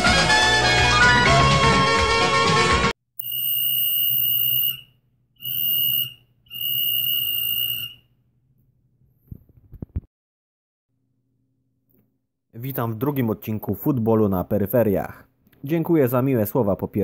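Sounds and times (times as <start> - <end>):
referee's whistle blasts: 3.2 - 8.0.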